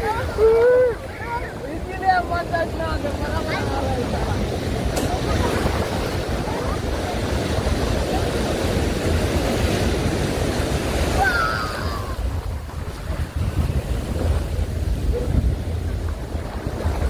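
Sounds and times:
surf washing over sand: 0.0s - 17.0s
wind buffeting microphone: 0.0s - 17.0s.

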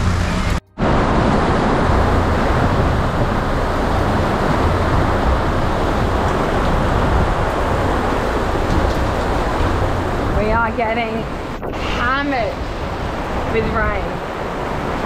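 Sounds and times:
heavy rain: 0.0s - 15.0s
wind at sea: 0.0s - 15.0s.

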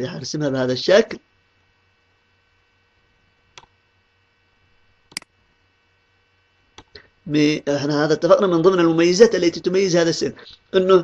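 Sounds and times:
low steady hum: 0.0s - 11.0s
computer mouse clicks: 3.5s - 3.8s, 5.1s - 5.3s, 6.7s - 7.0s.

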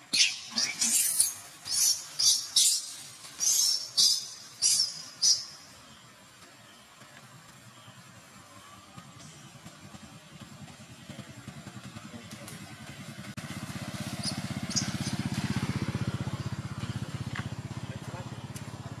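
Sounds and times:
vehicle engine throbbing: 6.8s - 19.0s.

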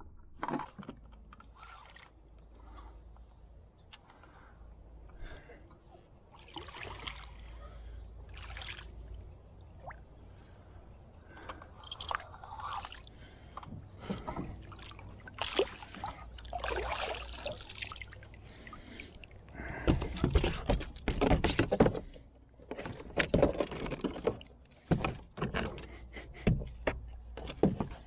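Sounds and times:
fish splashing: 6.3s - 10.5s, 11.3s - 19.4s.

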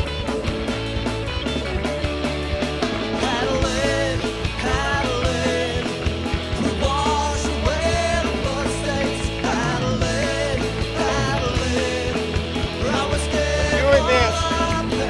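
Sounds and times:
rock song with singing: 0.0s - 15.0s.

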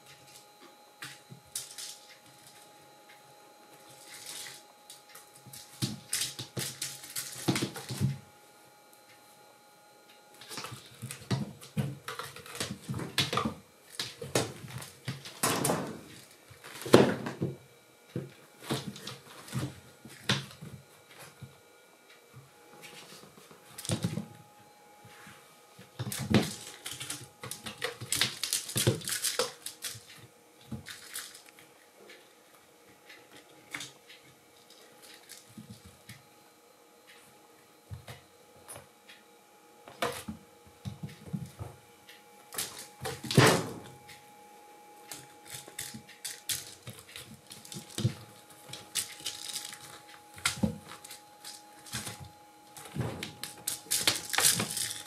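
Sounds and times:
kittens scuffling and thumping: 10.3s - 21.6s, 22.3s - 24.4s, 25.0s - 31.7s, 45.1s - 55.0s.

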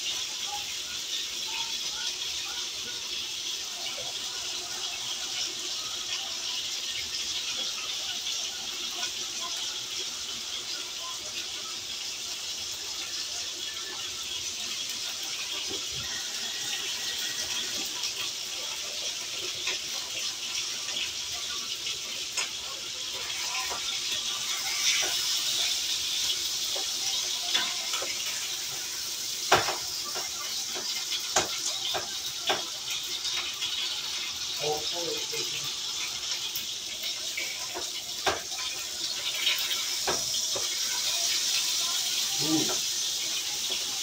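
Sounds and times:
patties sizzling in a frying pan: 0.0s - 44.0s
spatula knocking on pan: 29.5s - 32.7s.

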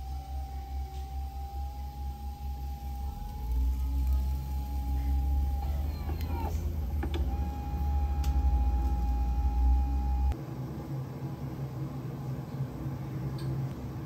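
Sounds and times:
electric motor whining: 0.0s - 10.4s
room machinery hum: 0.0s - 14.0s.

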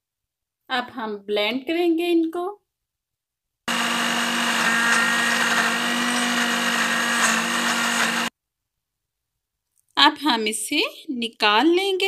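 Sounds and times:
electric blender grinding: 3.7s - 8.3s.

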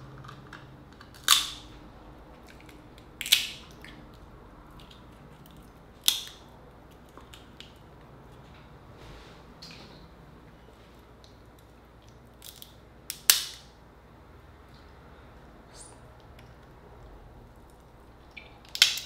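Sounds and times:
crab shell cracking: 1.0s - 1.7s, 2.5s - 4.0s, 4.8s - 7.8s, 12.1s - 13.6s, 18.6s - 19.0s.

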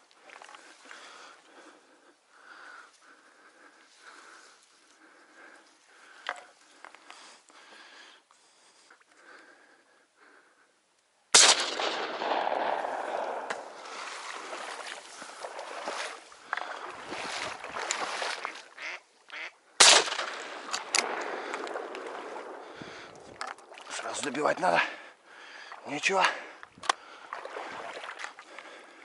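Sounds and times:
shotgun shots: 11.4s - 13.8s, 19.8s - 22.6s
ducks quacking: 18.7s - 19.6s.

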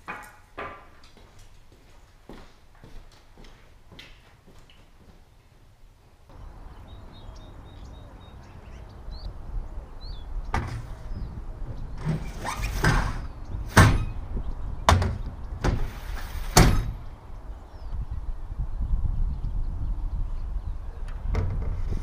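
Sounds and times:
wooden boards knocking and clunking: 14.9s - 15.9s.

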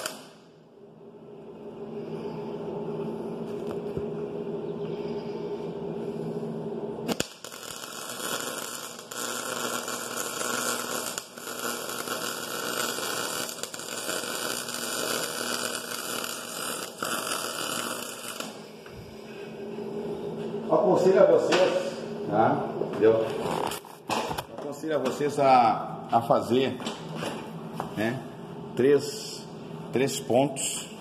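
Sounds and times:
welding arc crackling and hissing: 0.0s - 0.4s, 7.0s - 19.0s
welder electrical hum: 0.0s - 31.0s.

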